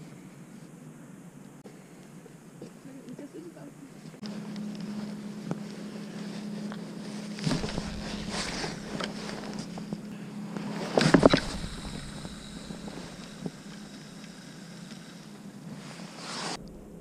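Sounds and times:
low hum: 3.7 - 17.0
wind buffeting microphone: 7.4 - 10.1.

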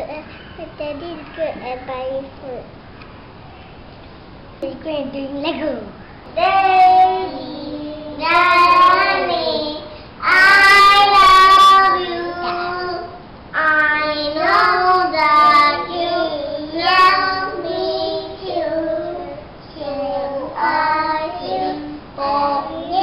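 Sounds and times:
children singing: 6.4 - 23.0.

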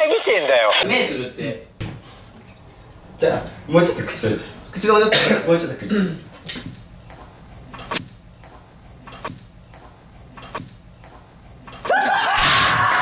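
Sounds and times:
young men shouting and cheering: 11.9 - 13.0.

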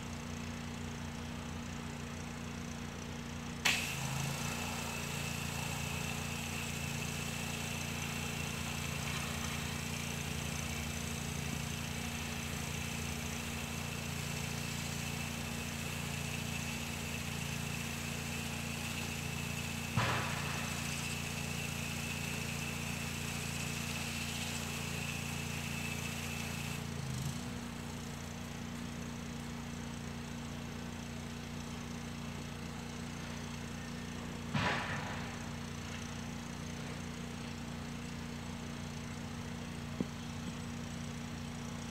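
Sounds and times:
pressure washer engine running: 0.0 - 41.9
high-pressure spray hissing: 3.6 - 26.9.

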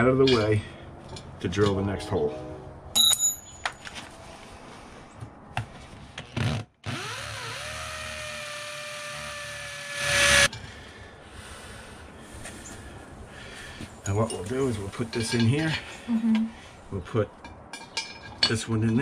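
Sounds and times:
power drill drilling into concrete: 6.9 - 10.5.

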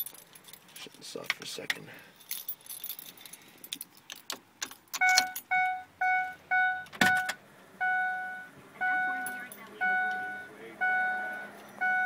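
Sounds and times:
keys jangling in ignition: 0.0 - 1.0, 2.1 - 5.6, 9.2 - 9.7
dash warning chime beeps: 5.0 - 12.0.

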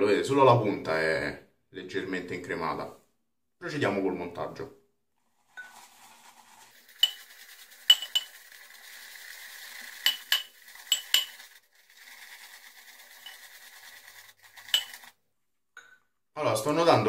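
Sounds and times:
shaving brush swishing lather: 5.3 - 15.2
brush clinking against bowl: 5.6 - 5.9, 6.8 - 9.0, 9.7 - 11.6, 12.4 - 15.1.

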